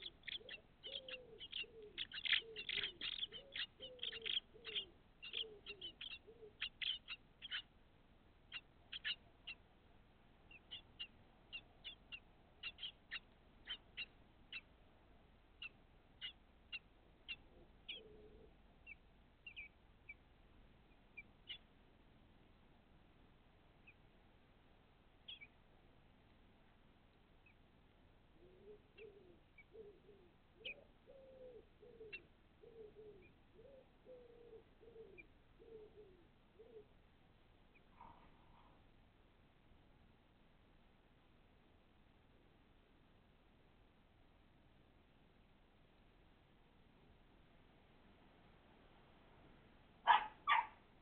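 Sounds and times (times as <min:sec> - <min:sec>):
nestlings cheeping: 0:00.0 - 0:07.7.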